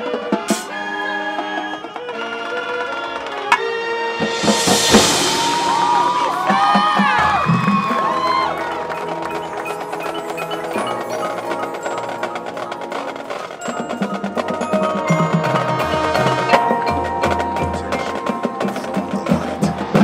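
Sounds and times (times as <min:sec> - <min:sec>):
mallet percussion: 0:03.5 - 0:20.0
low drum hits: 0:04.2 - 0:08.1
sustained chords: 0:04.2 - 0:08.9.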